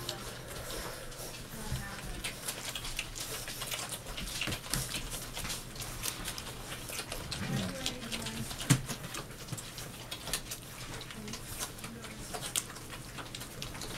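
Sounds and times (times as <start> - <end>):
puppies suckling wet clicking: 0.0 - 13.9
low puppy grunt: 7.1 - 8.5.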